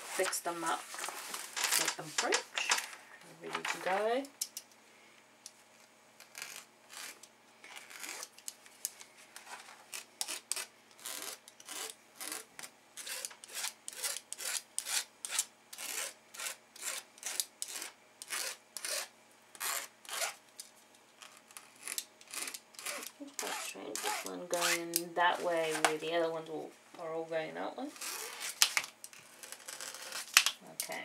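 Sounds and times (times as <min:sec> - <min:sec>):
flat tool rubbing canvas: 0:06.3 - 0:08.3, 0:09.4 - 0:20.4, 0:21.2 - 0:26.0, 0:27.9 - 0:30.3.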